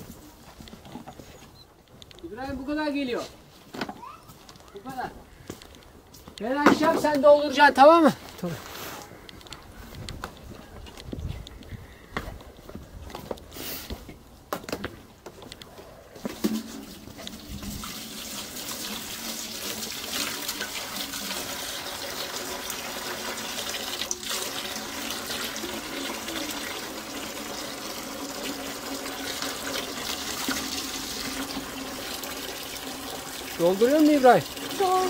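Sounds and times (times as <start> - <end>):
hose water pouring into metal bucket: 16.4 - 35.0.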